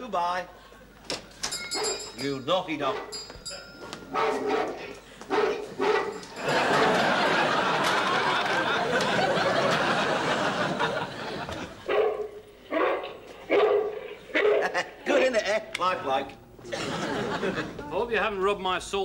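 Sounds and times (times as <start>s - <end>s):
recorded dog barks: 1.8s - 2.1s, 2.8s - 3.2s, 4.1s - 6.2s, 11.9s - 14.9s
studio audience laughing: 6.4s - 11.9s, 16.6s - 17.8s.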